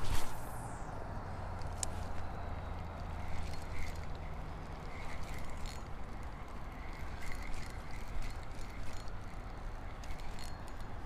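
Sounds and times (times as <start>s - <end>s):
steady low rumble: 0.0s - 5.0s
spinning reel clicking: 1.5s - 11.0s.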